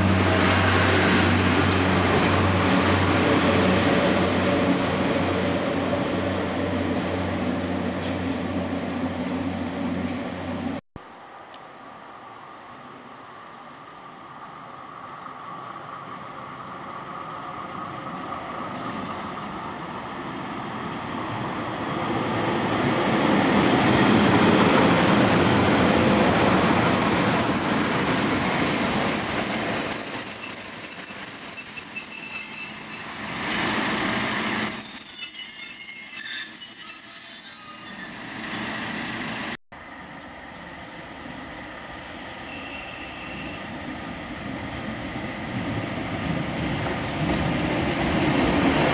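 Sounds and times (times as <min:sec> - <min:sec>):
train rumbling: 0:00.0 - 0:10.8, 0:12.9 - 0:48.9
high wheel squeal: 0:16.4 - 0:18.0, 0:19.7 - 0:21.6, 0:25.2 - 0:39.0, 0:42.1 - 0:44.1.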